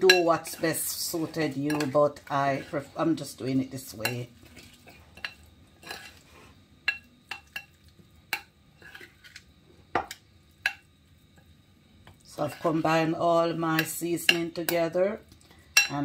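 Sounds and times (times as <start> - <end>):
spoon clinking and scraping glass bowl: 0.1 - 2.0, 4.0 - 6.2, 6.9 - 9.4.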